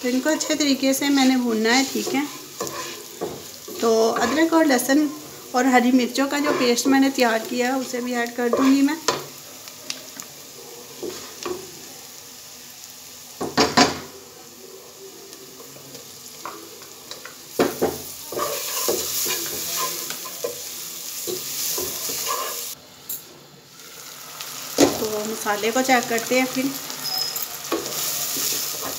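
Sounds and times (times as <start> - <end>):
wooden spoon scraping a pan: 0.0 - 9.4, 10.9 - 11.6, 17.1 - 22.8, 26.5 - 28.9
onions sizzling in a pot: 0.0 - 28.9.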